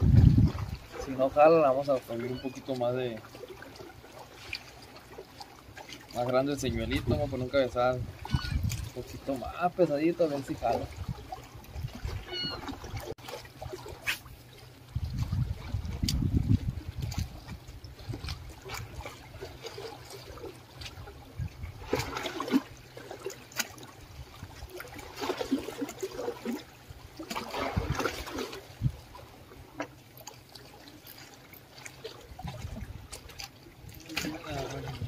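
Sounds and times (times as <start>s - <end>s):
waves splashing against concrete: 0.0s - 14.5s, 18.1s - 35.0s.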